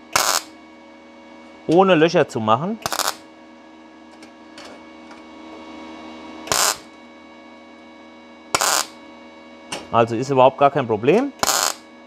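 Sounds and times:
welding arc crackling: 0.0 - 0.5, 2.8 - 3.2, 6.5 - 6.9, 8.6 - 9.0, 11.4 - 11.8
faint welder hum: 0.0 - 12.0.

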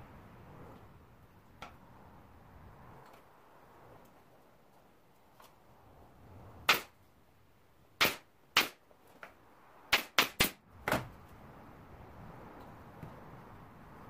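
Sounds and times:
nail gun shots: 6.6 - 7.0, 8.0 - 8.8, 9.9 - 11.1.

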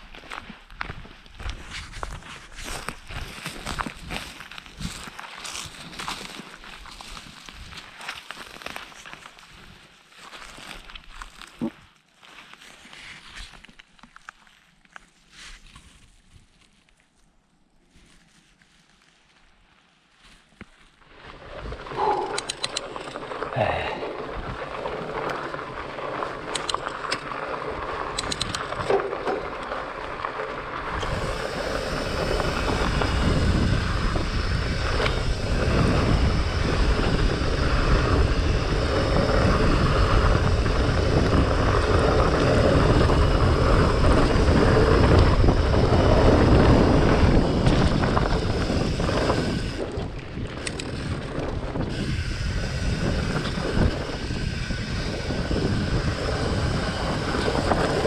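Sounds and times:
bike tyres rolling over gravel: 0.0 - 58.0
wind over microphone: 0.8 - 7.9, 21.4 - 58.0.

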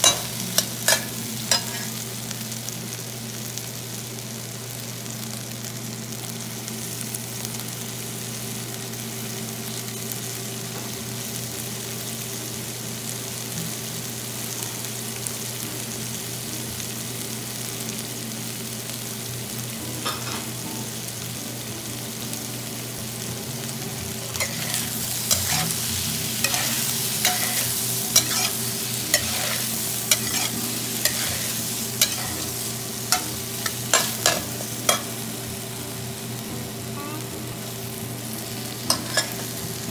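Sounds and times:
food sizzling in oil: 0.0 - 39.9
metal spatula scraping a pan: 24.3 - 35.1.

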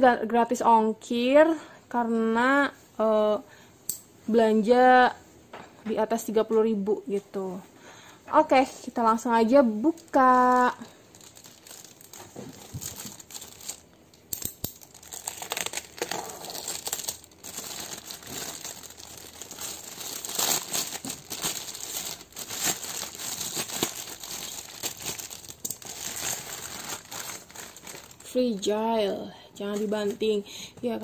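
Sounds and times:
plastic bag crinkling and tearing: 9.8 - 28.8.

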